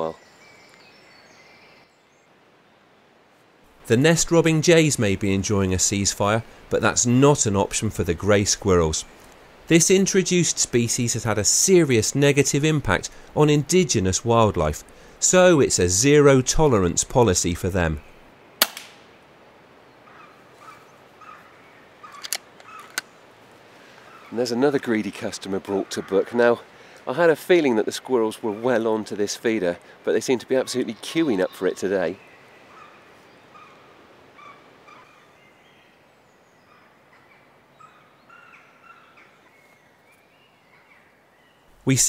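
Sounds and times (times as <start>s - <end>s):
sharp clicks: 18.6s - 19.0s
air rifle shot: 18.6s - 19.1s
faint bird chirps: 30.6s - 41.8s.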